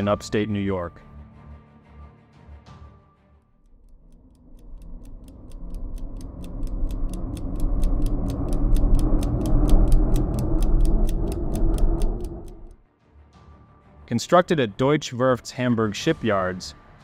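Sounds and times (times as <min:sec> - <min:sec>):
clock-like ticking: 0:03.6 - 0:12.8
low rumbling swell: 0:03.7 - 0:12.8.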